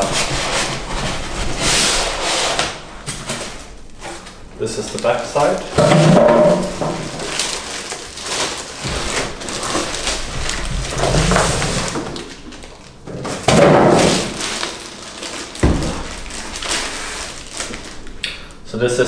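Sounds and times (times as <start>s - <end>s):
plastic bag crinkling: 3.0s - 18.5s
cardboard box scraping: 8.2s - 12.4s.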